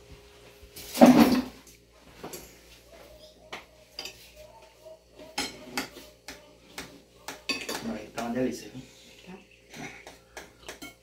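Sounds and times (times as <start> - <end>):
cutlery clinking on plates: 3.9 - 4.4, 5.2 - 6.0, 6.8 - 8.3, 9.6 - 11.0.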